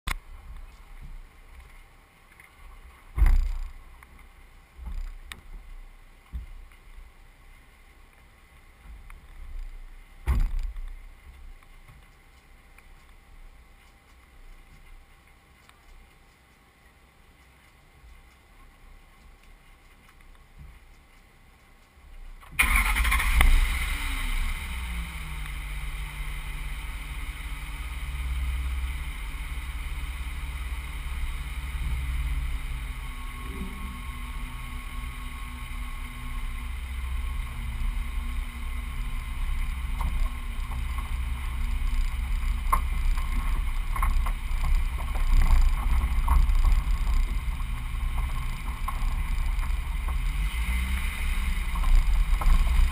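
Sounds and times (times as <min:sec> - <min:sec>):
truck engine starting and idling: 0:22.4 - 0:44.6.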